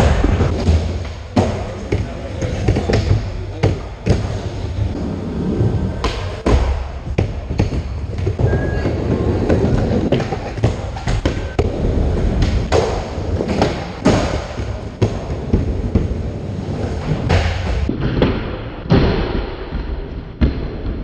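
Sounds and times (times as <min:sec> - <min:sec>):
skateboard wheels rolling: 0:04.2 - 0:17.9.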